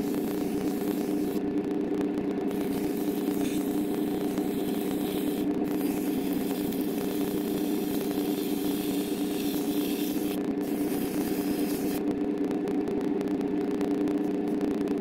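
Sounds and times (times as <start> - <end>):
metal lathe humming: 0.0 - 1.4, 2.5 - 12.0
sandpaper hissing on metal: 4.4 - 12.0.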